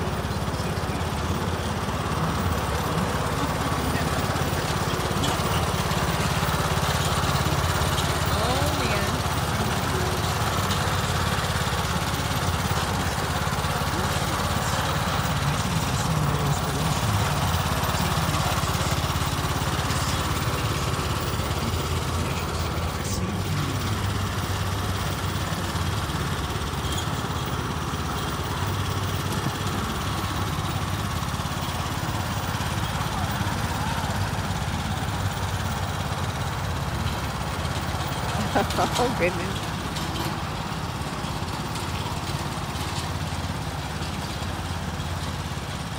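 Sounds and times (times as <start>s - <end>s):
riding lawn mower engine running: 0.0s - 45.9s.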